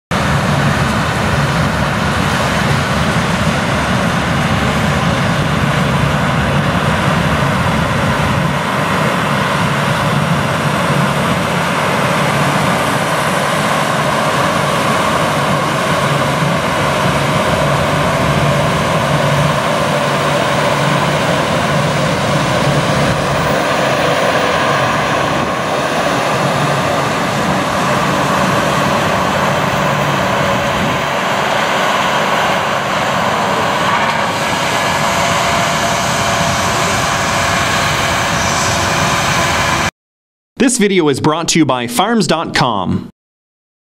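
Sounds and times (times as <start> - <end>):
combine and tractor engines droning: 0.1 - 39.9.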